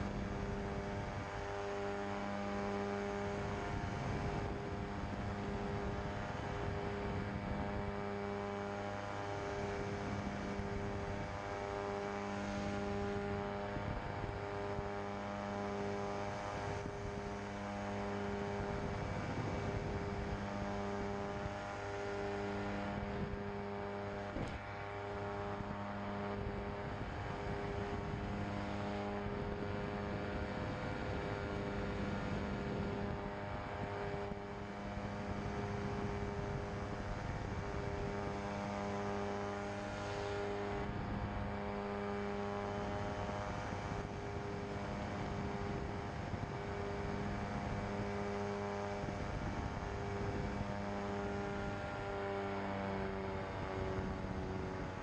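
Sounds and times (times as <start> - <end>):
ultralight aircraft engine drone: 0.0 - 55.0.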